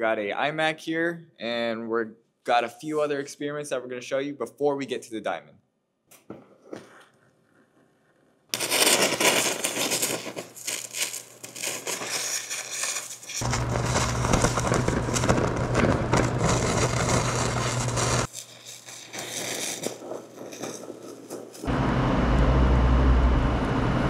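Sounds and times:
laser crackling and popping: 8.5 - 21.7
low hum: 13.4 - 18.3, 21.7 - 24.0.

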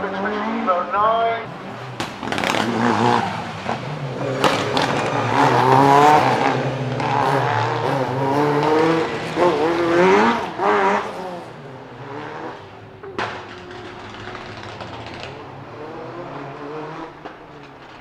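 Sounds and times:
rally car engine revving hard: 0.0 - 18.0
sharp cracks: 2.0 - 2.8, 13.0 - 15.6.

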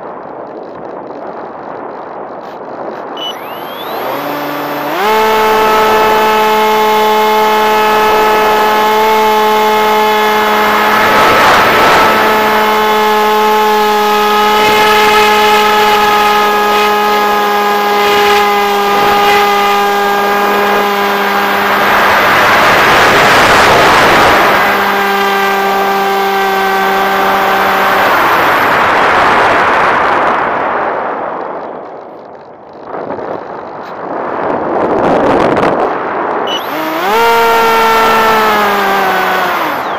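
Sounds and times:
electric motor and propeller whine: 0.0 - 30.8, 31.9 - 39.9
rushing wind: 0.0 - 39.9.

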